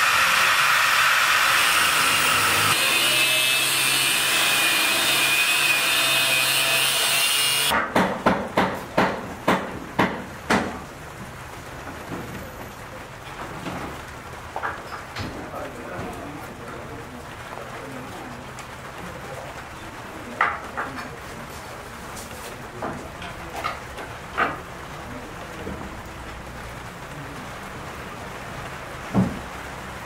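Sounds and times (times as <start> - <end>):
angle grinder cutting steel: 0.0 - 7.7
sharp knocks: 7.8 - 10.8.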